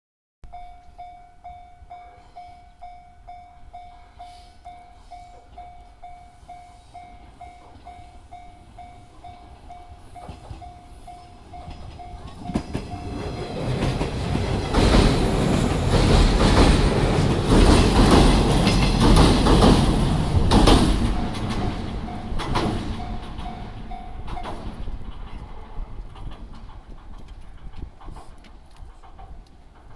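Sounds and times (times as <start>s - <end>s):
electric train passing: 0.5s - 29.9s
wheels clicking over rail joints: 8.6s - 29.9s.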